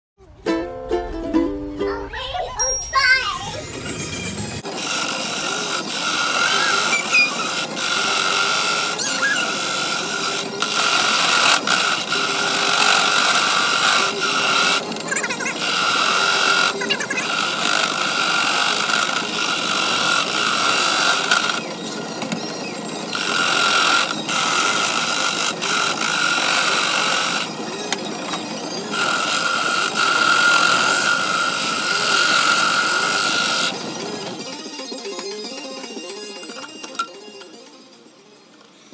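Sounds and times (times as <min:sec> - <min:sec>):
wood lathe whining: 0:03.7 - 0:38.9
gouge scraping wood: 0:04.8 - 0:14.8.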